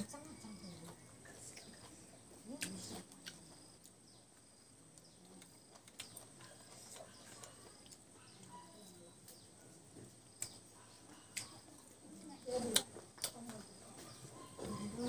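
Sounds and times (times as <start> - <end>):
person chewing food: 0.8 - 8.6.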